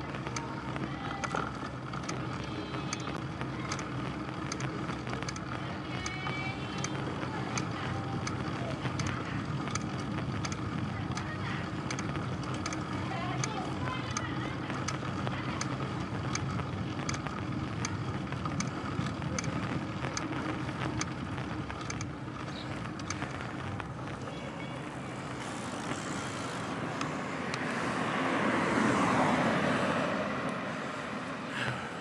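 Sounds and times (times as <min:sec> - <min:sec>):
bicycle tyre and road noise: 0:00.0 - 0:32.0
regular ticking: 0:00.0 - 0:32.0
car overtaking: 0:18.9 - 0:32.0.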